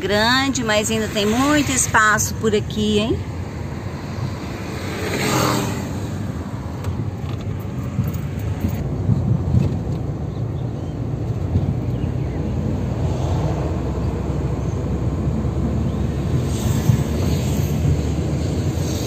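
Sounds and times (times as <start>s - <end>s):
car engine and tyre rumble: 0.0s - 19.0s
motorcycle overtaking: 2.9s - 8.9s.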